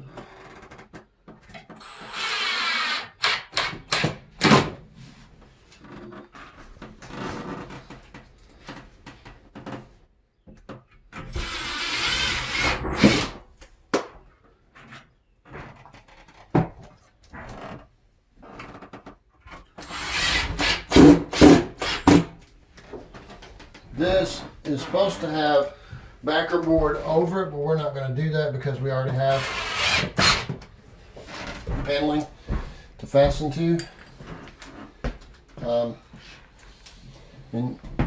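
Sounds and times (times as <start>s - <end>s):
cordless drill boring: 1.8s - 3.8s, 11.3s - 13.2s, 19.8s - 22.2s.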